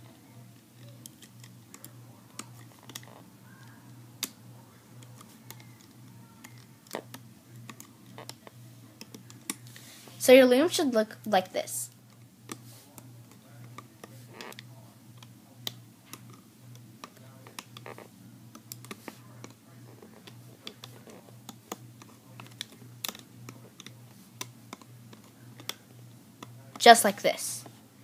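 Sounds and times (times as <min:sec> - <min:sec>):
faint low hum: 0:00.0 - 0:28.0
hook clicking on plastic pegs: 0:20.2 - 0:25.8.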